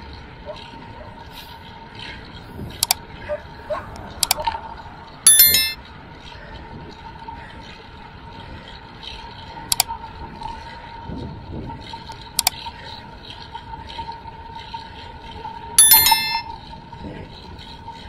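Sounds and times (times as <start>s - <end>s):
steady background noise: 0.0s - 18.0s
bright bell chime: 5.3s - 5.8s, 15.8s - 16.5s.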